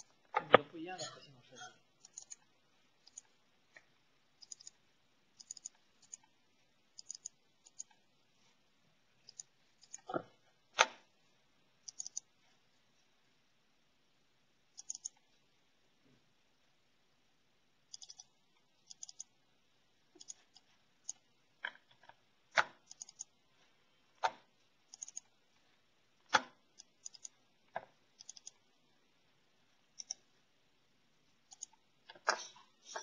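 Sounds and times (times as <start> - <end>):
computer mouse clicking: 2.0 - 8.0, 9.2 - 10.2, 11.8 - 12.3, 14.7 - 15.3, 17.9 - 19.4, 20.1 - 23.4, 24.1 - 25.4, 26.2 - 28.6, 29.9 - 30.3, 31.5 - 33.0.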